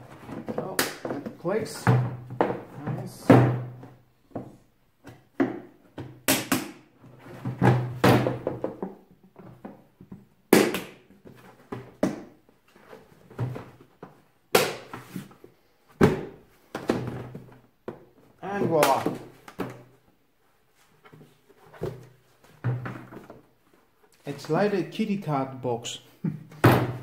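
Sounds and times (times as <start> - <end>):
plastic parts knocking and clicking: 0.1 - 12.4.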